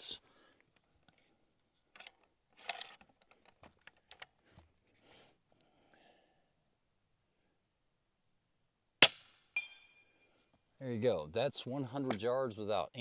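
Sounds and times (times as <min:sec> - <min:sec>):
rifle handling clicks and rustles: 0:00.6 - 0:04.9.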